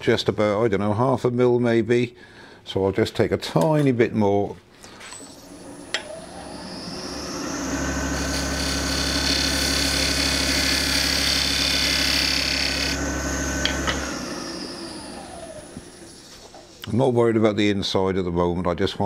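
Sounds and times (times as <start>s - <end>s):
wood lathe motor whine: 5.2s - 16.8s
tool cutting wood on lathe: 5.3s - 16.7s.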